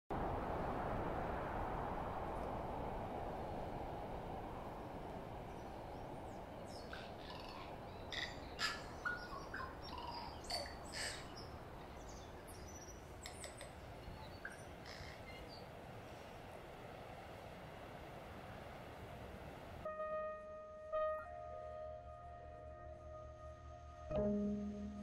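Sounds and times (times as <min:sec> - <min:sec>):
steady rushing noise: 0:00.1 - 0:19.9
bird chirps and calls: 0:06.6 - 0:15.7.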